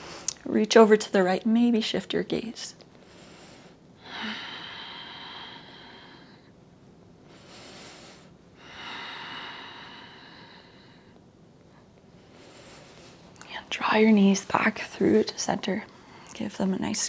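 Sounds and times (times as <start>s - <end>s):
woman breathing slowly: 0.0s - 0.3s, 2.9s - 13.8s, 15.9s - 16.4s.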